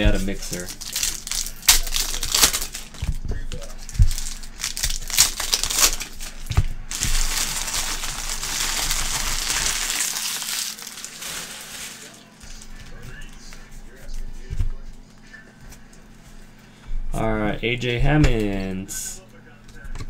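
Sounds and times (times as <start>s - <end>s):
foil wrapper crinkling: 0.0s - 12.8s.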